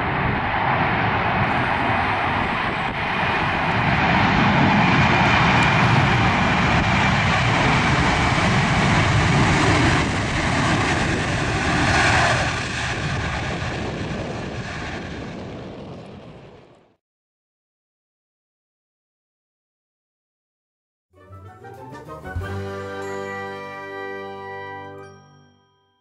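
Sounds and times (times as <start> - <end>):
jet engines running: 0.0 - 16.9.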